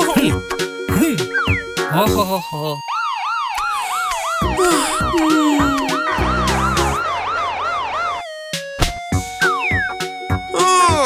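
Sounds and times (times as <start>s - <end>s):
cartoon police siren wailing: 2.8s - 8.5s.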